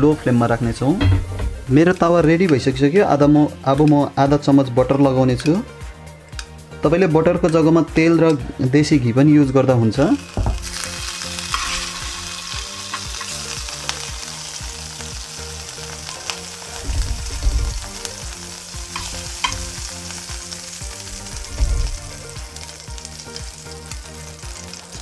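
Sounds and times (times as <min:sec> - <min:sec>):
butter sizzling in a hot pan: 0:09.9 - 0:25.0.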